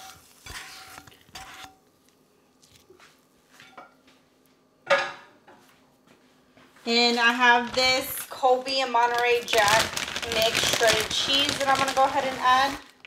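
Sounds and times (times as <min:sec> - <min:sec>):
utensil scraping frying pan: 0:00.0 - 0:01.8
cookware clunk: 0:04.8 - 0:05.3.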